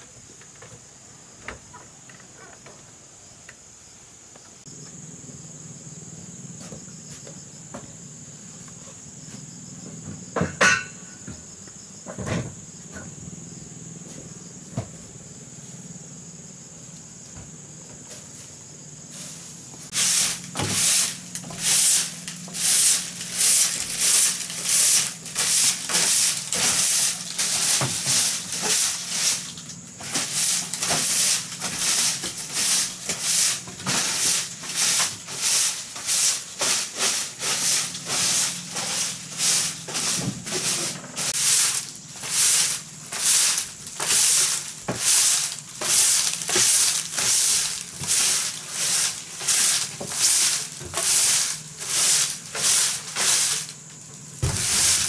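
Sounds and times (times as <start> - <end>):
rhythmic scraping strokes: 19.2 - 53.8.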